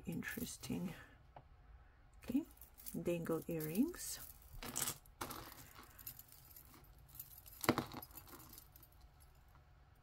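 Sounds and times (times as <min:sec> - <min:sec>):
metal jewelry jingling: 0:02.3 - 0:09.6.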